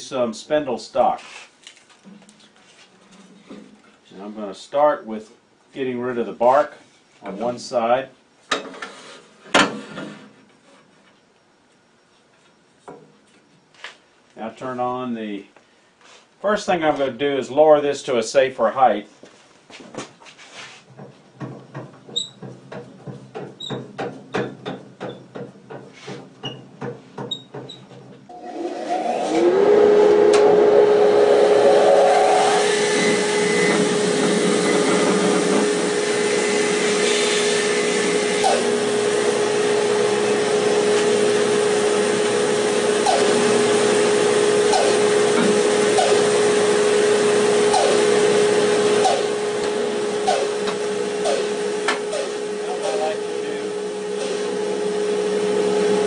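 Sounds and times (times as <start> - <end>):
bandsaw blade cutting log: 28.3 - 41.3, 42.2 - 46.7, 47.6 - 53.2
bandsaw motor humming: 28.3 - 56.0.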